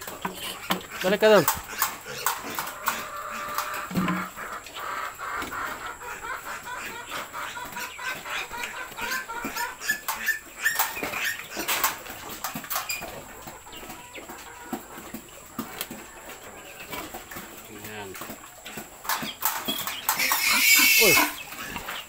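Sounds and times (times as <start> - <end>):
piglets squeaking: 0.2 - 12.0, 19.2 - 22.0.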